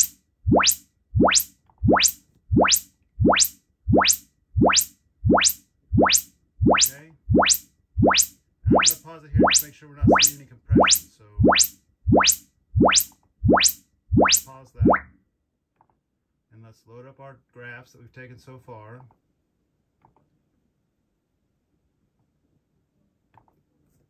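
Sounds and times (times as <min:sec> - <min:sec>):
rising sine chirp sweep: 0:00.0 - 0:15.0.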